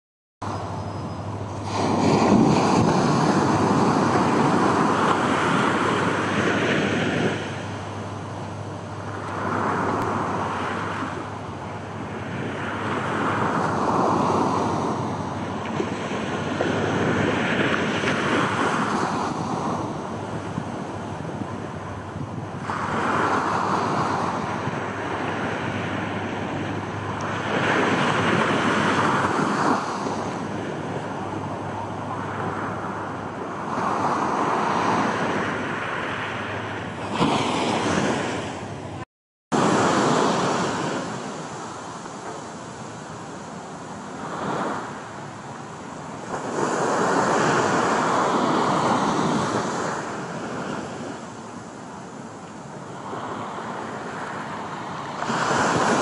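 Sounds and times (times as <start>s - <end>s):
wind buffeting microphone: 0.4s - 39.0s
small waves breaking on beach: 1.5s - 8.0s, 8.9s - 22.0s, 22.6s - 39.0s, 39.6s - 56.0s.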